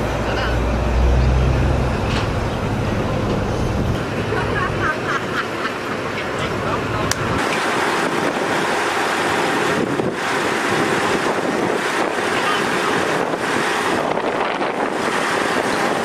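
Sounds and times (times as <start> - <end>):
wind buffeting microphone: 6.4 - 16.0.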